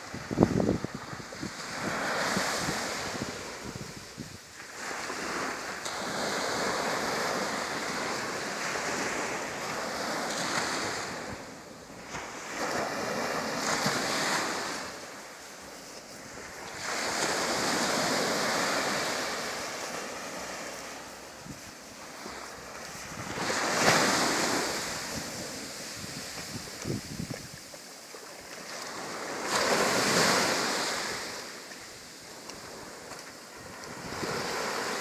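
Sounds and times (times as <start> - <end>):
ocean surf breaking: 4.7 - 35.0.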